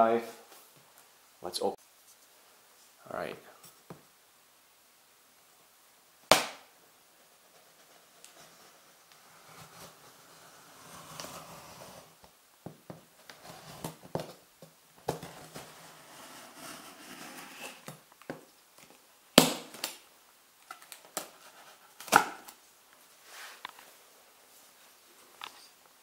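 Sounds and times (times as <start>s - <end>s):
knife cutting cardboard: 7.6s - 12.2s, 13.2s - 14.4s, 15.1s - 18.0s.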